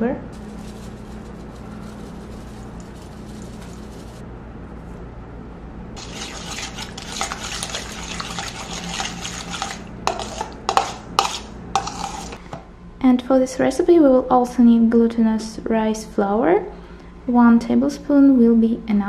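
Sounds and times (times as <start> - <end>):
low steady hum: 0.0 - 19.0
salt sprinkling rustle: 0.4 - 4.2
fork scraping metal bowl: 6.0 - 12.4.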